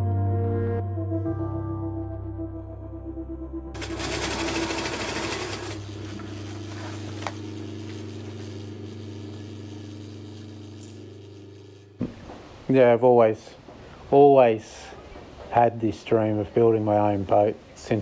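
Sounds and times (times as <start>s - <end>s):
soft ambient music: 0.0s - 5.6s
sewing machine stitching: 3.8s - 6.2s.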